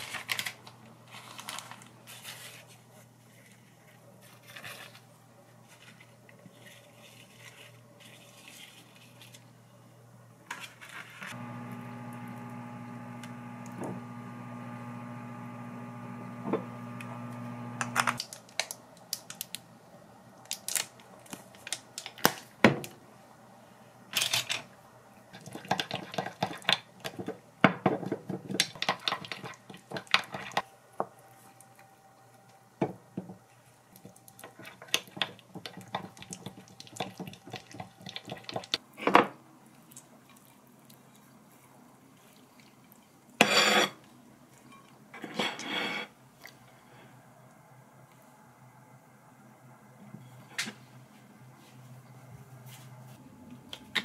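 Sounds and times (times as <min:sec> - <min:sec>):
microwave oven humming: 0:11.4 - 0:18.2.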